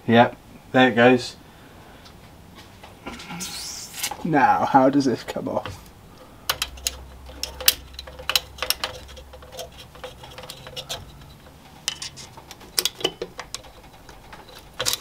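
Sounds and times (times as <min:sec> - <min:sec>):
light metallic clicks and taps: 0:06.5 - 0:15.0.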